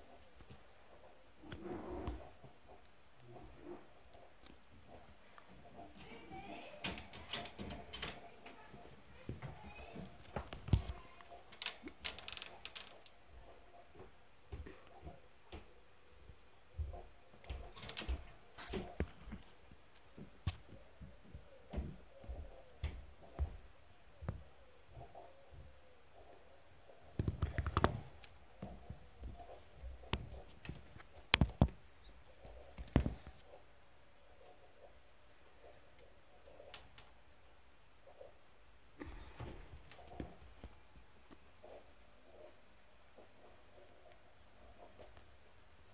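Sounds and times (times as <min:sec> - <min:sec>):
clicks and rustles in wire cage: 0:05.8 - 0:08.6, 0:09.8 - 0:13.6, 0:17.4 - 0:19.5
clicks and knocks in wire cage: 0:06.8 - 0:08.3.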